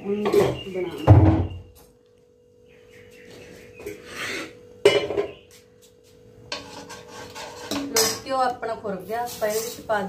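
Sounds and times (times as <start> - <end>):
metal spoon scraping a pan: 6.4 - 8.5, 9.2 - 10.0.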